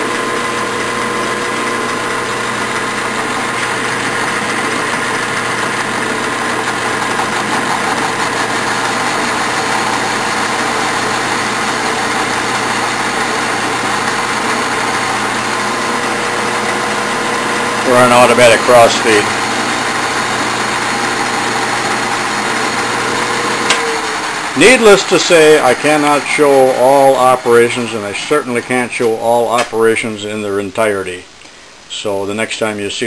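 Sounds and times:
lathe tool cutting metal: 0.0s - 30.1s
metal lathe motor humming: 0.0s - 30.1s.

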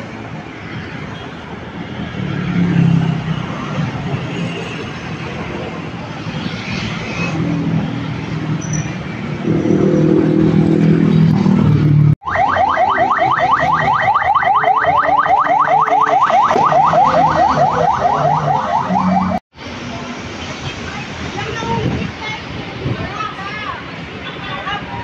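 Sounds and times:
street traffic drone: 0.0s - 25.0s
ambulance siren yelping: 12.2s - 19.4s.

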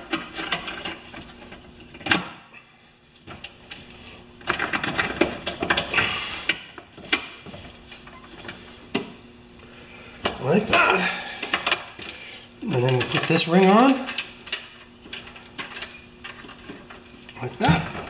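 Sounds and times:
metal parts clicking and rattling: 0.0s - 2.2s, 4.4s - 5.9s, 11.4s - 18.0s.

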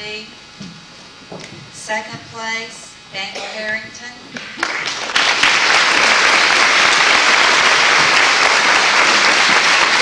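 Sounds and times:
audience applauding: 4.4s - 10.0s.

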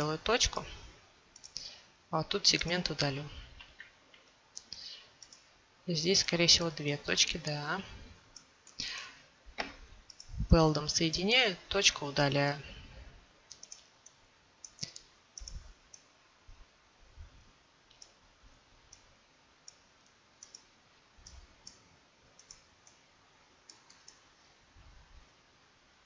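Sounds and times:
mouse buttons clicking: 13.5s - 16.1s, 20.4s - 21.8s, 23.7s - 24.2s.

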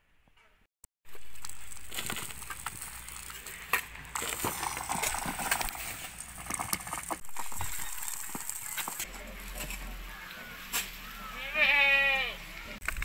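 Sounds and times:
hoes scraping stony soil: 1.1s - 10.0s.

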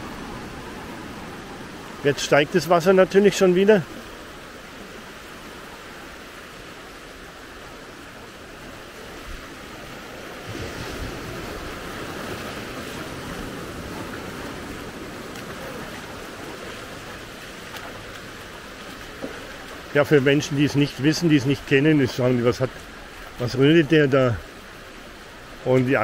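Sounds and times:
sea water washing over stones: 9.4s - 24.0s.

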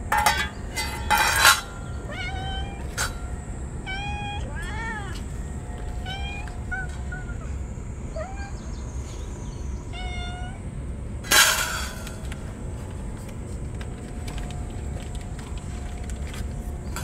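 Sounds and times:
cats meowing: 0.7s - 10.7s.

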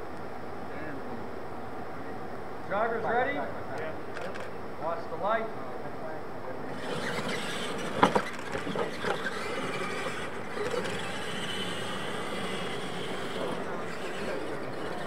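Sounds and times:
electric motor whine: 6.7s - 15.0s
tyre and gear noise: 6.7s - 15.0s.

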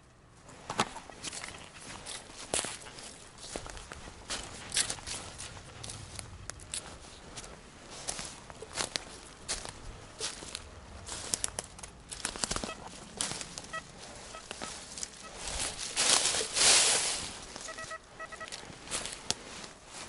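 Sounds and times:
twigs cracking: 0.6s - 19.7s
footsteps through dry leaves: 1.2s - 20.0s
faint short beeps: 12.6s - 12.9s, 13.6s - 15.5s, 17.6s - 18.6s.

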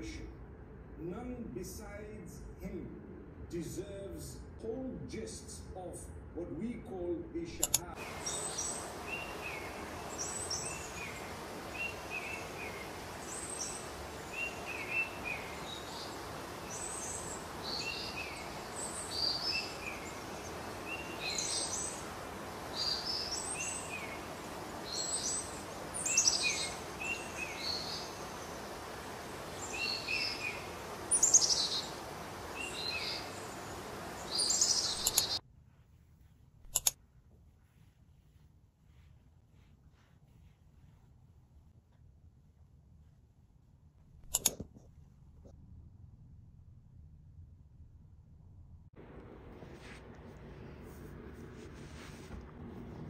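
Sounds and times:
steady background noise: 0.0s - 35.4s, 48.9s - 53.0s
small birds chirping: 7.7s - 35.4s
faint rustle: 8.0s - 43.6s, 49.0s - 53.0s.

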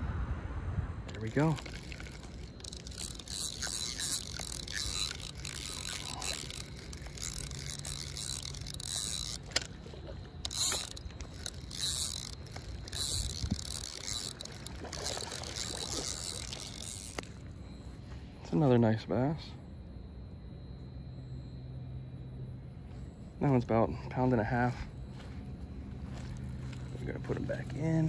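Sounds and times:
sharp reel clicks: 1.1s - 9.8s, 10.4s - 17.5s
fishing reel gears whirring: 1.1s - 19.0s, 24.3s - 28.0s.

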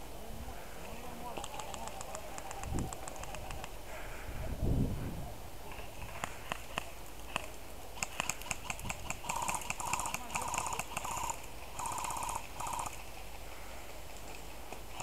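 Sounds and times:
airsoft full-auto bursts: 6.0s - 13.0s.

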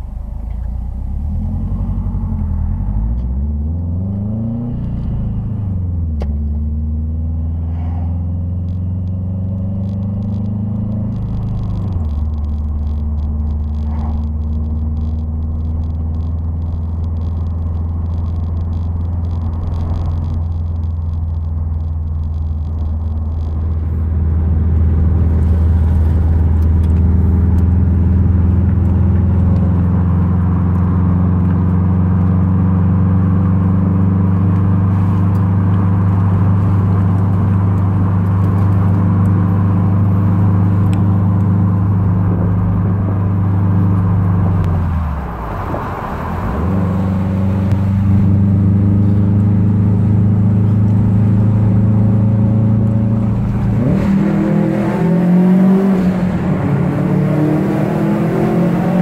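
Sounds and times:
car engine running: 0.0s - 59.0s
road noise inside car: 0.0s - 59.0s.

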